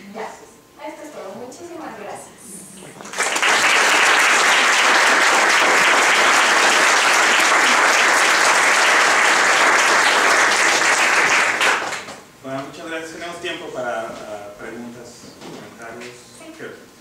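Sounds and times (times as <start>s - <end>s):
audience applauding: 3.0s - 12.2s.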